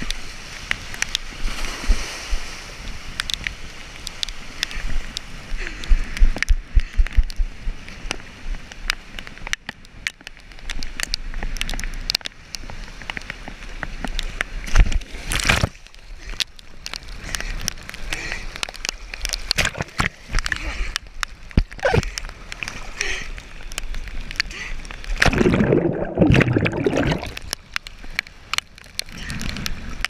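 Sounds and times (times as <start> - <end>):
waves splashing on rocky shore: 0.0 - 5.6
water drops tapping camera: 25.2 - 27.6.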